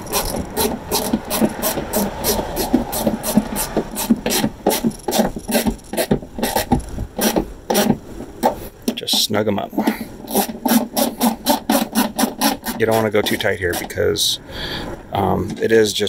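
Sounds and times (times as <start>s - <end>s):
hand ratchet clicking: 0.0s - 7.9s.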